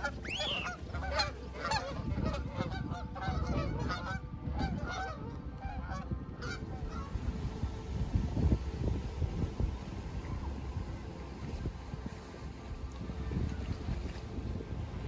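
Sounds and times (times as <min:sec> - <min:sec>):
geese honking: 0:00.0 - 0:07.3
low wind rumble: 0:00.0 - 0:15.0.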